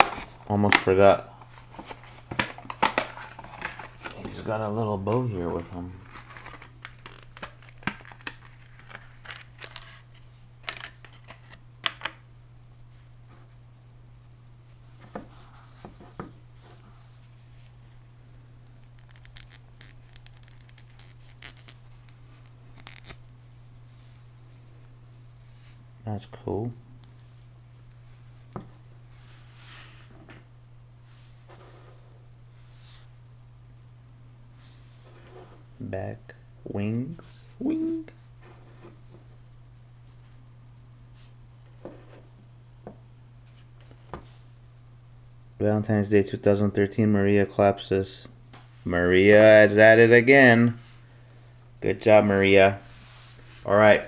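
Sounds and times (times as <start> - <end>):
steady low hum: 0.0 - 54.0
plastic packaging crinkling: 5.4 - 11.5, 18.8 - 23.3
gloved hands rubbing vinyl figure: 18.9 - 23.2.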